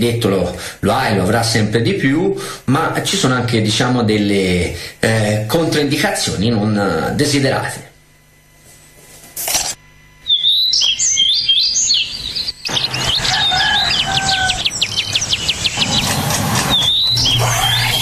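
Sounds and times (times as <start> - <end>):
steady low hum: 0.0 - 18.0
birds chirping and singing: 10.3 - 18.0.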